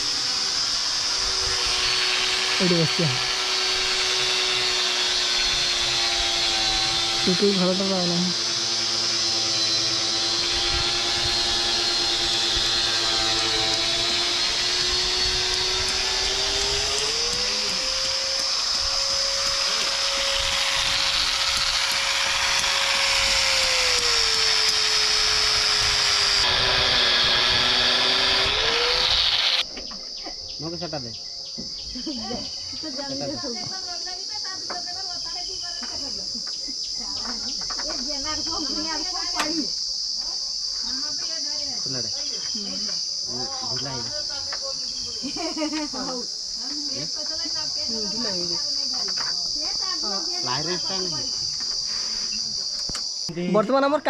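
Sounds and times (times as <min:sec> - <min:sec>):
power tool motor whining: 0:00.0 - 0:29.7, 0:40.8 - 0:53.3
high-pitched insect drone: 0:00.0 - 0:54.0
voices talking: 0:29.6 - 0:52.7.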